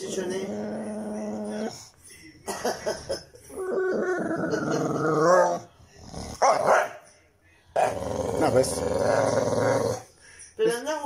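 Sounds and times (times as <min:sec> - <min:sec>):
dog moaning: 0:00.0 - 0:01.9, 0:03.4 - 0:06.6, 0:07.8 - 0:10.1.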